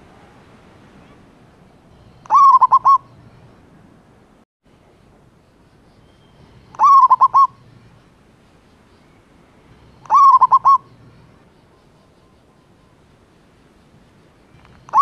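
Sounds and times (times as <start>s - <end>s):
dove cooing: 2.2s - 3.1s, 6.7s - 7.6s, 10.0s - 11.0s.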